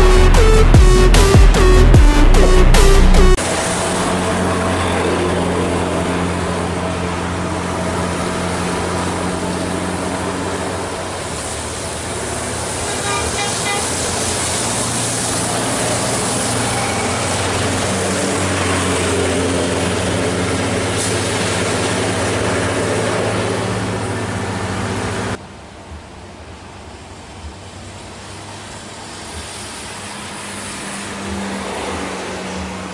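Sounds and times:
bus engine drone: 0:00.0 - 0:32.9
tyre hiss on wet road: 0:10.8 - 0:18.4, 0:20.6 - 0:23.4, 0:27.0 - 0:32.9.

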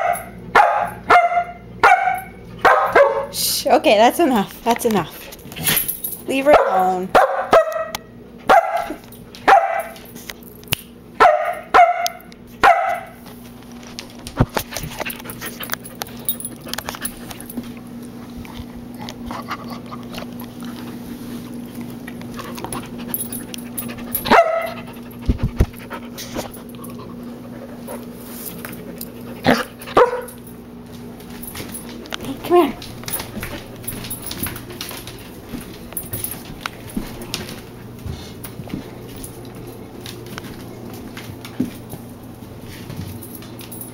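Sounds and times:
puppy barking: 0:00.0 - 0:03.4, 0:06.5 - 0:10.0, 0:11.2 - 0:13.2, 0:24.3 - 0:24.9, 0:29.4 - 0:30.4.

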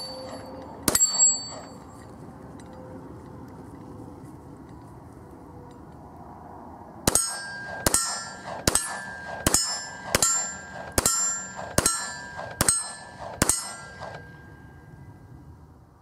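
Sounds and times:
steel plate ringing: 0:00.0 - 0:01.9, 0:07.1 - 0:15.1
pistol shots: 0:07.1 - 0:14.4.

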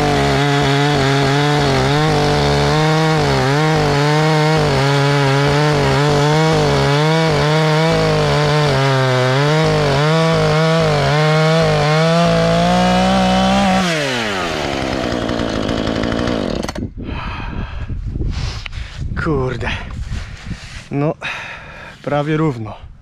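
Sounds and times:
chainsaw cutting log: 0:00.0 - 0:16.9.

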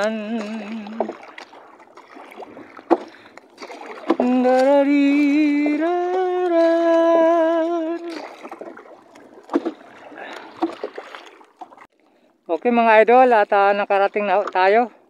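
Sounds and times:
man singing la la tune: 0:00.0 - 0:01.1, 0:04.2 - 0:08.3
paddle knocking against boat: 0:00.0 - 0:11.8
paddle strokes swishing water: 0:00.0 - 0:15.0.

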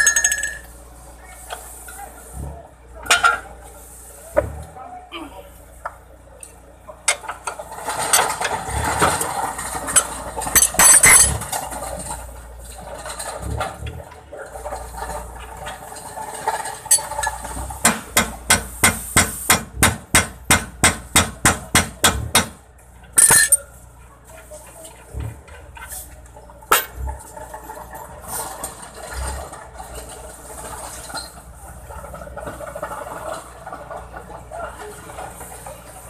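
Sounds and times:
hammer striking steel: 0:17.8 - 0:22.6.

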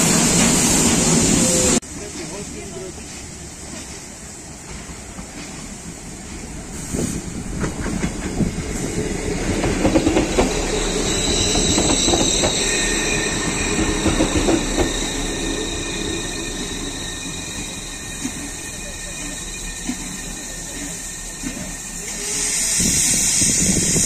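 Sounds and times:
wheels squealing on rails: 0:06.7 - 0:24.0
train wheels clacking over rail joints: 0:07.4 - 0:12.7.

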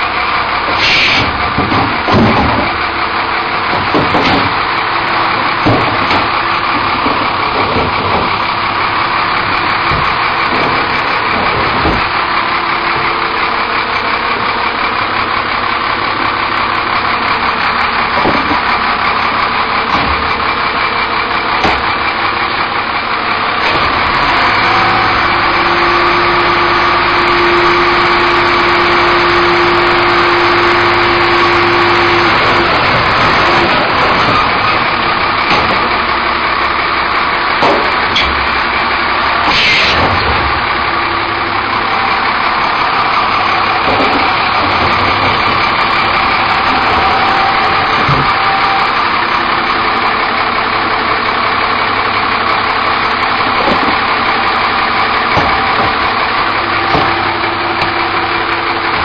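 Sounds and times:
hydraulic whine: 0:00.0 - 0:59.0
truck engine idling: 0:00.0 - 0:59.0
bins knocking and clattering: 0:01.1 - 0:13.2, 0:18.1 - 0:18.8, 0:19.8 - 0:20.5, 0:31.5 - 0:36.2, 0:37.5 - 0:38.5, 0:42.5 - 0:48.8, 0:53.5 - 0:54.2, 0:55.2 - 0:58.0.

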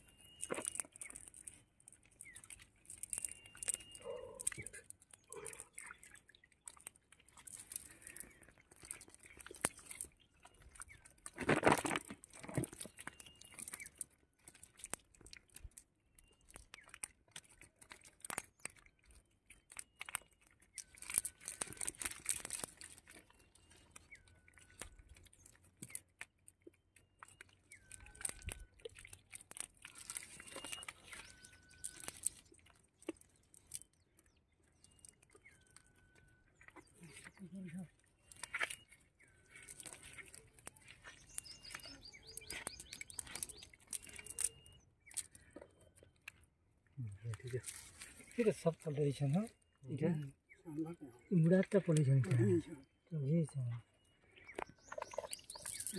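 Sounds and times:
bird calling: 0:03.2 - 0:06.0, 0:34.9 - 0:45.5, 0:53.8 - 0:55.9
dry leaves crackling and rustling: 0:20.8 - 0:23.2, 0:29.5 - 0:32.6.

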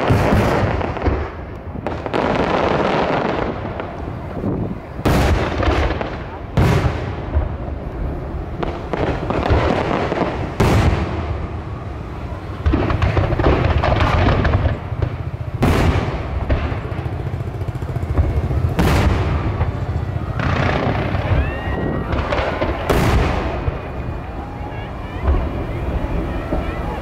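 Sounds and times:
low rumble and crackle of fireworks: 0:00.0 - 0:27.0
sharp bangs: 0:08.6 - 0:27.0.

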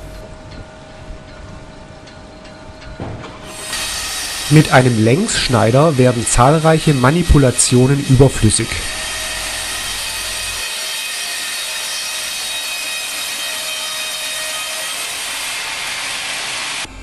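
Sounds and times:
band saw cutting timber: 0:03.4 - 0:17.0.

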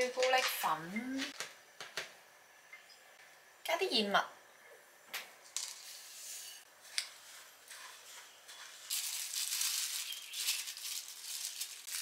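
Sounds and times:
oats poured into bowl: 0:07.2 - 0:12.0.

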